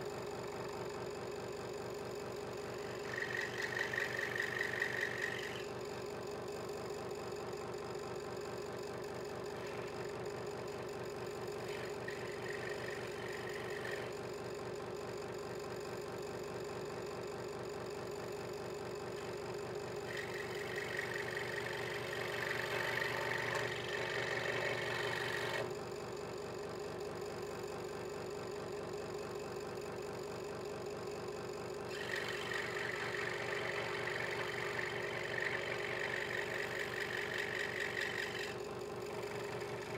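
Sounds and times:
scroll saw humming: 0:02.7 - 0:05.8, 0:09.4 - 0:10.1, 0:10.8 - 0:14.2, 0:19.2 - 0:25.7, 0:31.9 - 0:39.9
saw blade rasping through wood: 0:03.0 - 0:05.6, 0:32.0 - 0:38.6.

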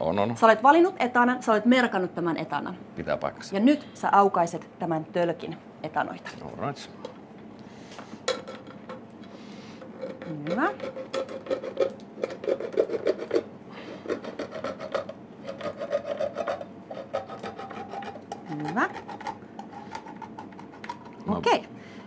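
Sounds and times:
can opener cutting tin can: 0:10.2 - 0:21.1.

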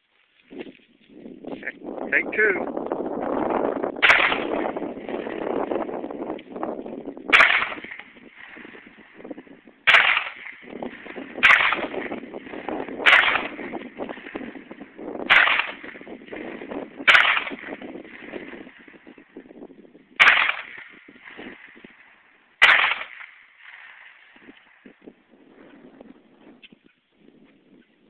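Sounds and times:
handgun shots: 0:04.0 - 0:04.6, 0:07.3 - 0:08.0, 0:09.9 - 0:10.6, 0:11.4 - 0:12.0, 0:13.0 - 0:13.6, 0:15.3 - 0:15.9, 0:17.1 - 0:17.8, 0:20.2 - 0:20.8, 0:22.6 - 0:23.3.

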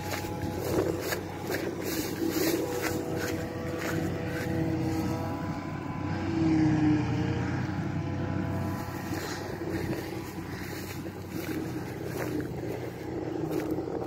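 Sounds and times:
forage harvester drone with whine: 0:00.0 - 0:14.0.

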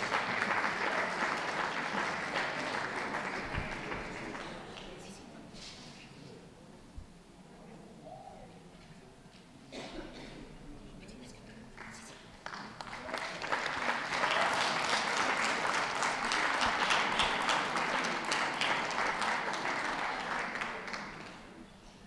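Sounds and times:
audience applauding: 0:00.0 - 0:05.0, 0:11.8 - 0:21.6.

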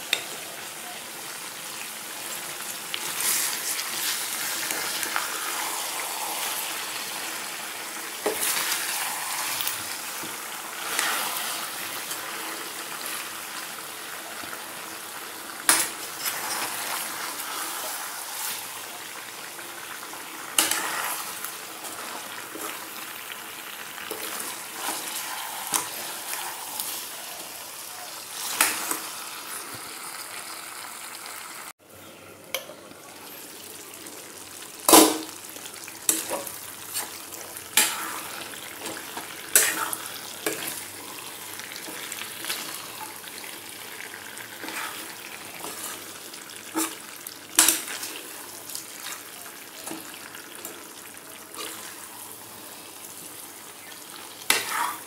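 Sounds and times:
stew sizzling in a metal pot: 0:00.0 - 0:31.8, 0:32.5 - 0:55.0
metal spoon scraping and clinking: 0:15.7 - 0:16.9.

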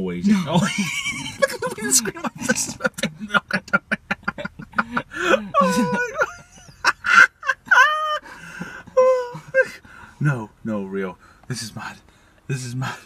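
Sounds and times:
people laughing hysterically: 0:00.5 - 0:09.8.

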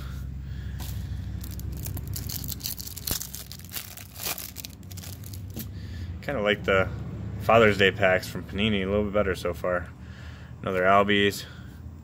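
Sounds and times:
plastic wrapper crinkling: 0:01.4 - 0:05.7.

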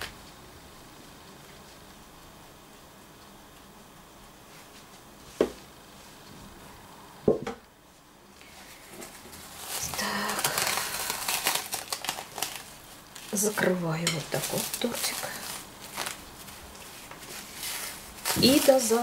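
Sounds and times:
plastic film crinkling: 0:08.4 - 0:19.0.

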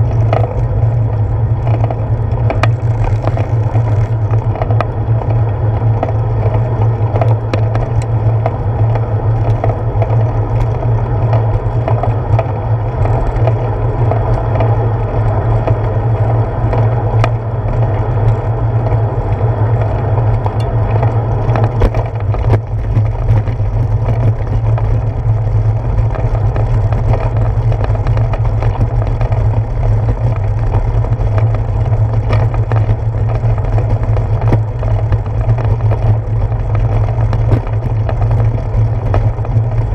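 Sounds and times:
bicycle rattling over bumps: 0:00.0 - 0:39.9
bicycle tyre noise: 0:00.0 - 0:39.9
wind rumble: 0:00.0 - 0:39.9.

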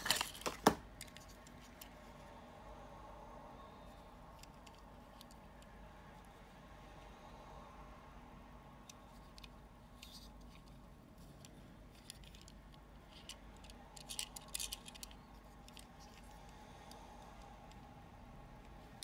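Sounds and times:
faint steady hum: 0:00.0 - 0:19.0
fingers clicking toy car: 0:11.3 - 0:17.9.

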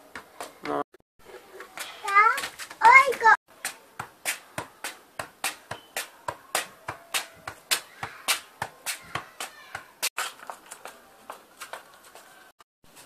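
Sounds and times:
football tapped between feet on paving: 0:00.1 - 0:00.8, 0:02.3 - 0:11.8.

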